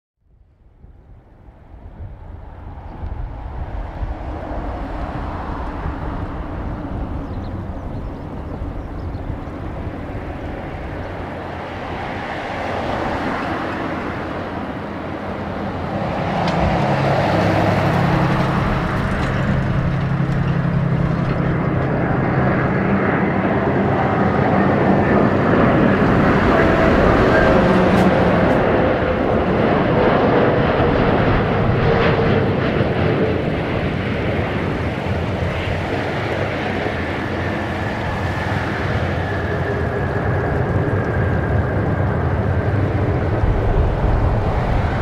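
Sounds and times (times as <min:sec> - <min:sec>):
wind rumble on microphone: 0:00.2 - 0:45.0
jet airliner engines whining: 0:00.6 - 0:45.0.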